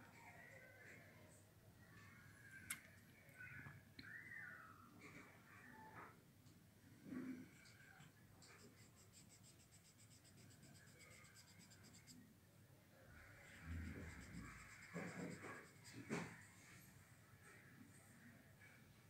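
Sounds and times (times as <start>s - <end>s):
pencil scratching on paper: 8.4s - 12.2s, 13.4s - 16.5s.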